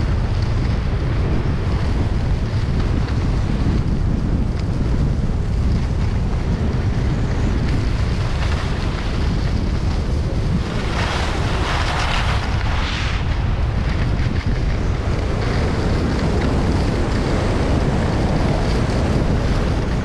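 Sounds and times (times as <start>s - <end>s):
wind buffeting microphone: 0.0s - 20.0s
skis hissing on packed snow: 9.9s - 14.3s.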